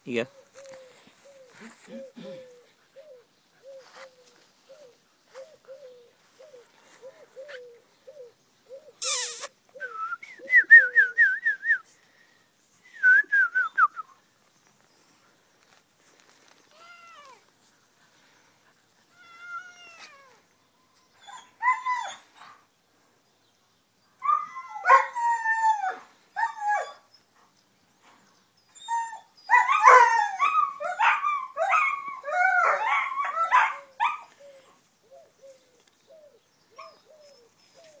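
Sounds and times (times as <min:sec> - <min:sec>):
dove cooing: 0:00.6 - 0:09.0, 0:34.4 - 0:38.0
puppy whining and yowling: 0:19.1 - 0:20.4, 0:21.1 - 0:22.4, 0:24.2 - 0:27.1, 0:28.7 - 0:34.6.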